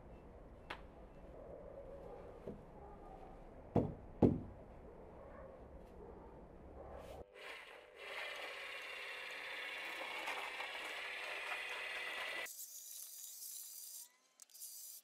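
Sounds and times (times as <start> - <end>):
wooden form knocking: 3.7 - 4.5.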